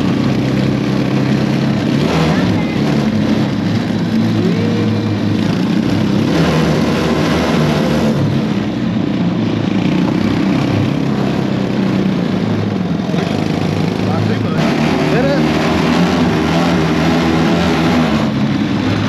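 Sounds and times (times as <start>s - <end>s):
small engine running: 0.0s - 19.0s.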